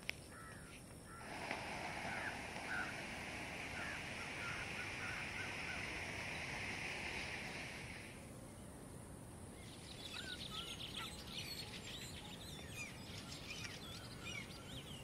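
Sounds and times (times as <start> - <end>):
steady hiss: 0.0 - 15.0
short bird calls: 0.3 - 8.2.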